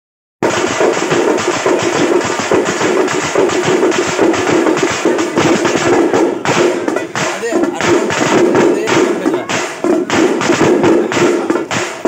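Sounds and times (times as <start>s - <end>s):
frame drums beaten fast: 0.4s - 12.0s.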